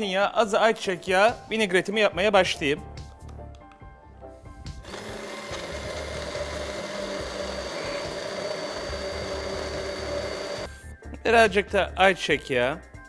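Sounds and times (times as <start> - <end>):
stick blender whirring: 4.8 - 10.7.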